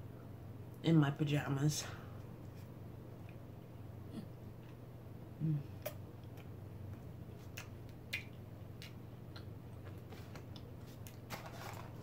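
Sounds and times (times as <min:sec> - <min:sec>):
low steady hum: 0:00.0 - 0:12.0
person chewing food: 0:05.8 - 0:11.3.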